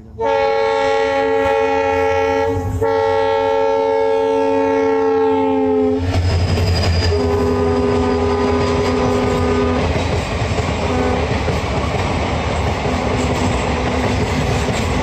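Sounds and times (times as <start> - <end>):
locomotive engine and wheels rumble: 0.0 - 4.4, 5.9 - 15.0
locomotive air horn blasts: 0.0 - 6.0, 7.1 - 9.9, 10.8 - 11.4, 12.9 - 14.6.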